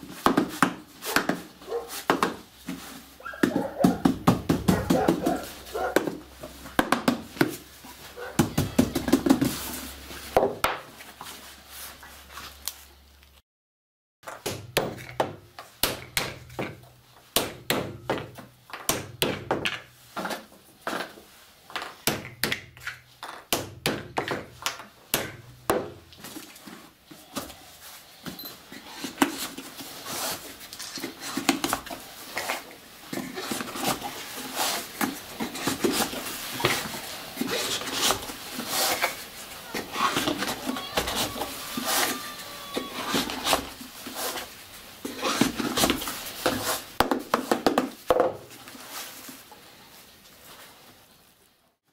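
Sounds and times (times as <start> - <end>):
wooden rammer knocking in cardboard tube: 3.4 - 6.2.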